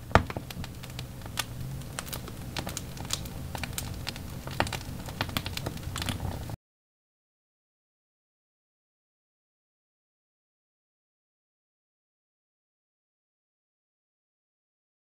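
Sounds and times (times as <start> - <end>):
low steady rumble: 0.0 - 6.6
wood fire crackling and popping: 0.0 - 6.6.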